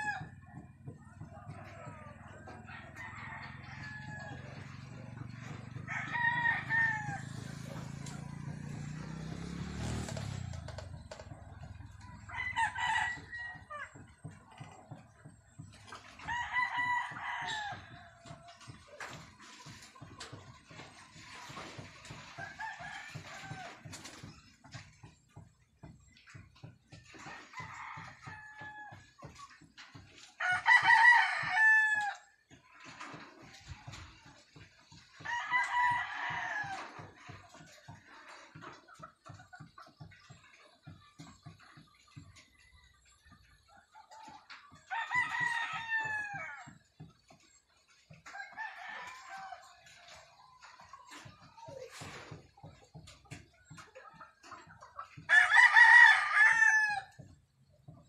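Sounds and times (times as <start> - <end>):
roosters crowing: 0.0 - 0.4, 1.5 - 14.4, 15.5 - 18.4, 21.4 - 24.0, 27.1 - 29.2, 30.4 - 33.2, 35.2 - 38.2, 44.7 - 47.3, 48.2 - 50.4, 55.2 - 57.4
rooster crowing: 2.5 - 4.7, 5.8 - 8.3, 55.3 - 57.2.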